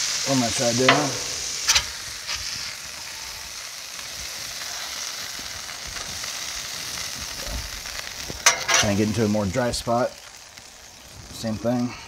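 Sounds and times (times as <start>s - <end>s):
food sizzling on a griddle: 0.0s - 12.0s
metal spatula scraping griddle: 0.6s - 2.6s.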